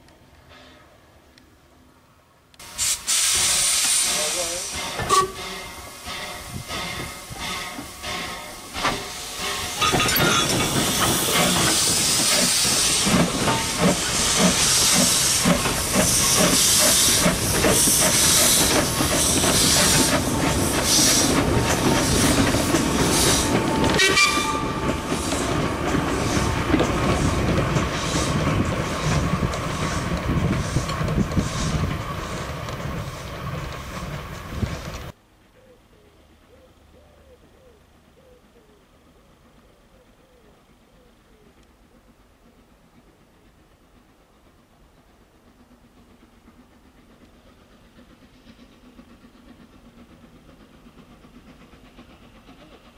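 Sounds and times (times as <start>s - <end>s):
hissing steam: 2.6s - 35.2s, 39.0s - 52.9s
rhythmic locomotive exhaust beats: 2.6s - 52.9s
wheels clicking over rail joints: 7.7s - 35.2s.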